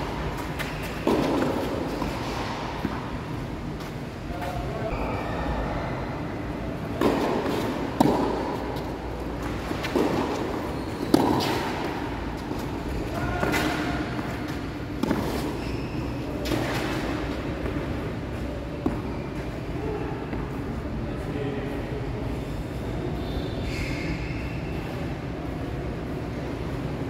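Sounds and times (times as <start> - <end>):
tennis balls struck and bouncing: 0.0 - 4.7, 6.7 - 15.6, 18.8 - 19.1.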